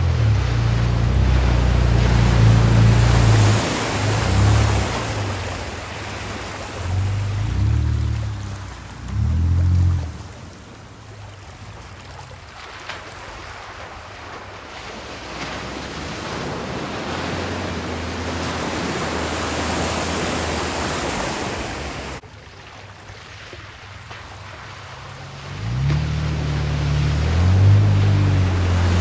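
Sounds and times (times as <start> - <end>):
engine running: 0.0 - 12.6, 23.8 - 29.0
water sloshing and splashing: 0.0 - 29.0.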